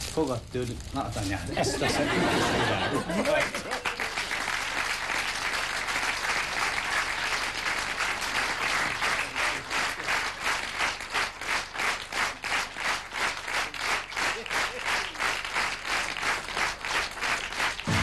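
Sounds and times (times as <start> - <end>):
audience applauding: 1.7 - 18.0
rhythmic clapping in unison: 3.0 - 18.0.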